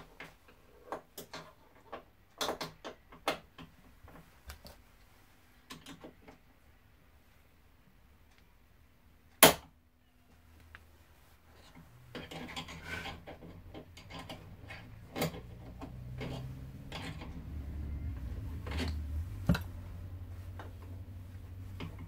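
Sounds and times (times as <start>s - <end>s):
low hum: 14.9s - 22.0s.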